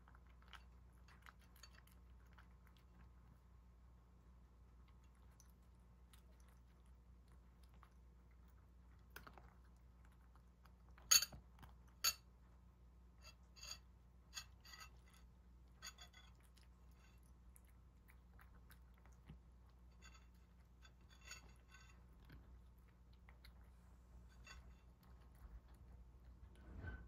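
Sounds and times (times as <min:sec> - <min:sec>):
cat chewing kibble: 0:00.0 - 0:26.9.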